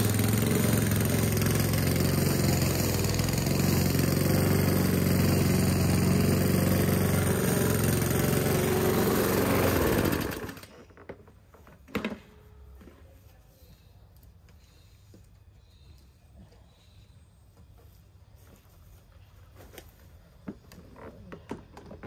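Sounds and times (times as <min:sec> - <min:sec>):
lawn mower engine running: 0:00.0 - 0:11.6.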